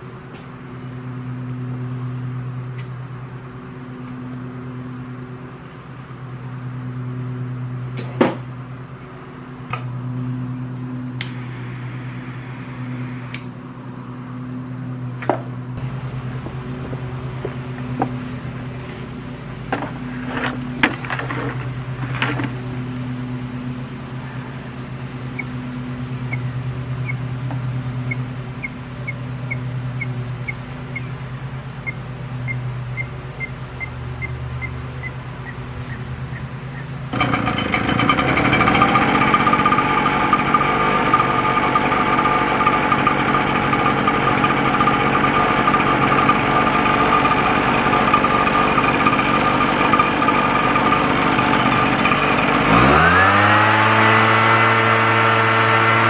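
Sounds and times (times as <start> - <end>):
steady low hum: 0.0 - 38.6.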